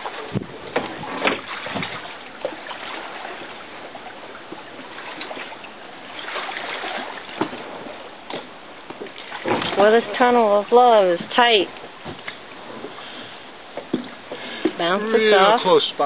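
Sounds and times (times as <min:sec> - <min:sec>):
sharp knocks on boat: 0:00.0 - 0:02.6, 0:06.3 - 0:10.3, 0:11.0 - 0:13.0, 0:13.7 - 0:15.0
shallow water splashing: 0:00.0 - 0:16.0.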